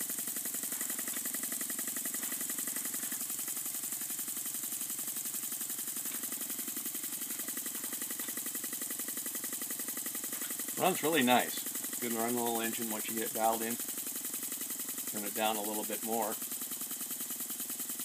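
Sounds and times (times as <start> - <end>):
air engine chuffing: 0.0 - 16.6.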